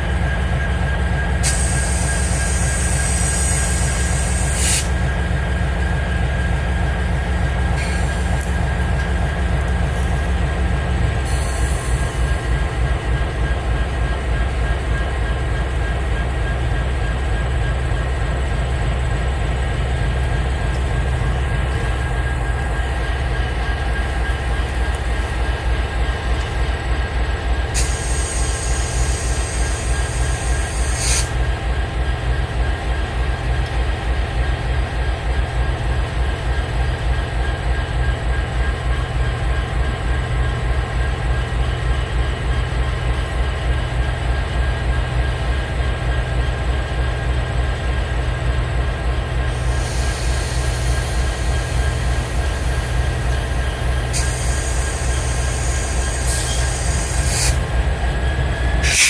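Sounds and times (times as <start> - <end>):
freight train rumbling past: 0.0 - 59.0
high wheel squeal: 27.8 - 31.4, 49.6 - 57.7, 58.7 - 59.0.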